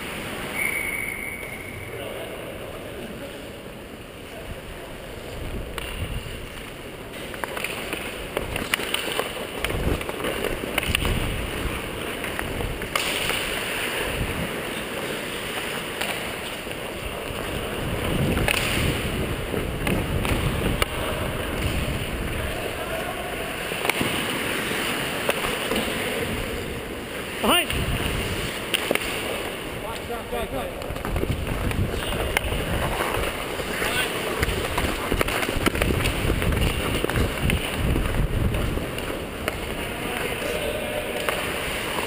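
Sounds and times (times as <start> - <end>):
skate blades scraping ice: 5.0 - 42.0
sticks and puck clacking: 5.2 - 42.0
wind on microphone: 17.1 - 22.6, 27.7 - 28.5, 30.8 - 33.4, 34.5 - 39.0
distant shouts: 39.8 - 41.6.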